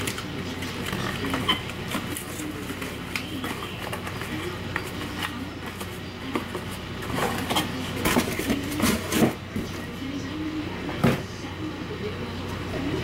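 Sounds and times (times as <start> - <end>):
cardboard and paper rustling: 0.0 - 9.9.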